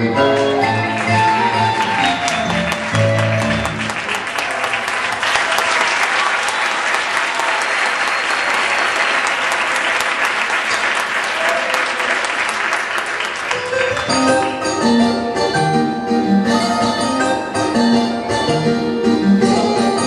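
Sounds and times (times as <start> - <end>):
audience applause: 0.4 - 14.6.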